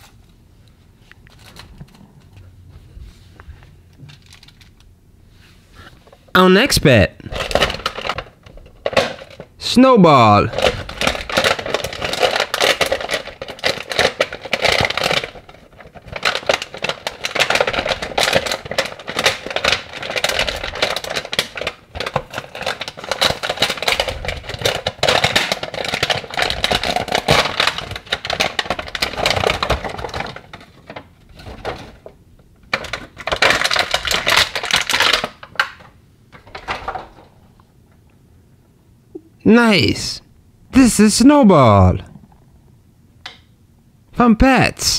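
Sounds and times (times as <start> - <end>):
plastic packaging crinkling: 1.2 - 2.5, 3.9 - 4.9, 7.2 - 9.6, 10.5 - 37.6.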